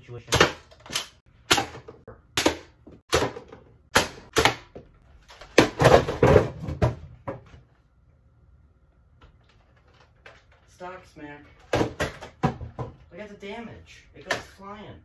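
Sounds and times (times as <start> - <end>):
foam-dart blaster and box knocks: 0.3 - 7.4
boxes clattering down: 5.3 - 7.4.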